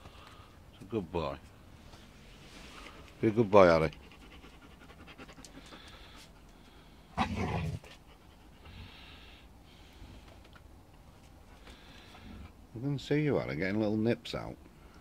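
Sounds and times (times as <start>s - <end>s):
dogs panting: 3.6s - 9.6s
dog grunt: 7.2s - 8.0s.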